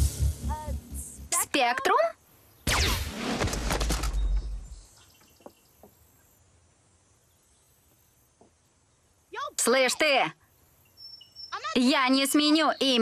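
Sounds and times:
energy blast with deep rumble: 0.0s - 1.3s
faint outdoor background noise: 0.0s - 13.0s.

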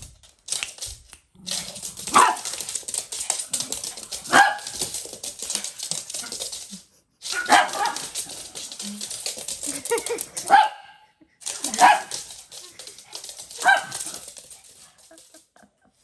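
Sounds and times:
claws clicking on laminate floor: 0.0s - 10.6s, 11.4s - 15.5s
small dogs barking: 2.1s - 2.6s, 4.2s - 4.8s, 7.4s - 8.2s, 11.7s - 12.3s, 13.6s - 14.2s.

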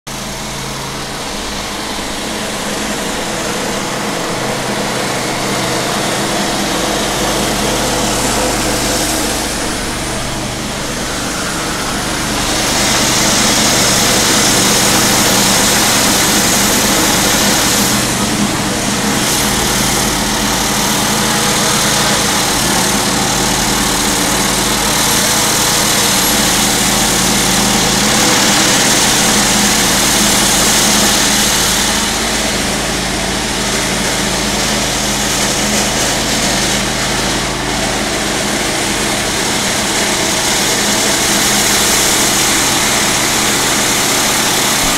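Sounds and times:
jackhammer hammering: 0.1s - 44.9s
steady low hum: 0.4s - 25.4s.

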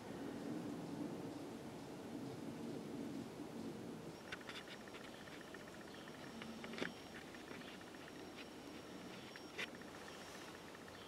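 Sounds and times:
rapid faint chirping: 3.6s - 11.0s.

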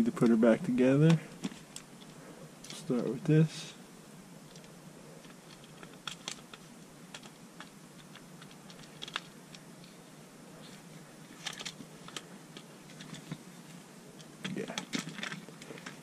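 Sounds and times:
plastic parts clicking: 4.5s - 9.6s, 14.4s - 16.0s.

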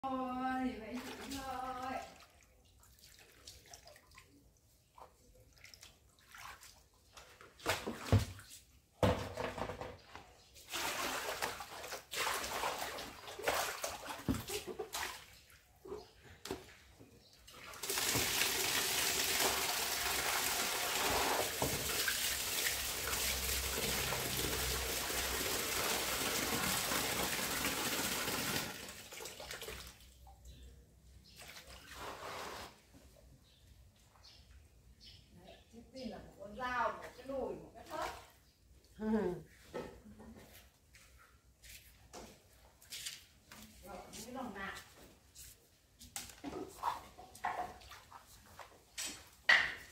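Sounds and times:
hands sloshing in water: 1.0s - 8.8s
splashes and knocks: 5.0s - 30.1s, 46.1s - 49.9s
tap water running: 17.7s - 29.8s.

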